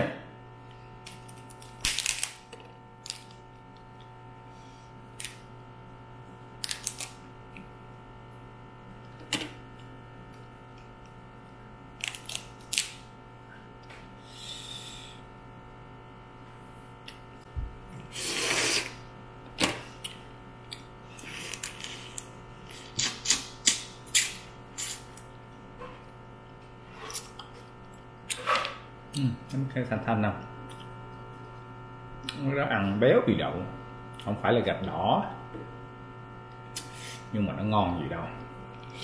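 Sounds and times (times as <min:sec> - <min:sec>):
low steady hum: 0:00.0 - 0:39.0
crab shell cracking: 0:01.0 - 0:03.4, 0:06.6 - 0:07.2, 0:12.0 - 0:13.0.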